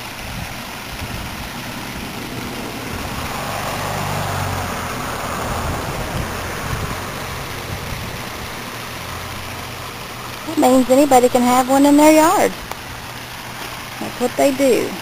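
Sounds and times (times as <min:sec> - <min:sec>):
low rumble: 0:00.0 - 0:11.0
waterfall splashing into pond: 0:00.0 - 0:15.0.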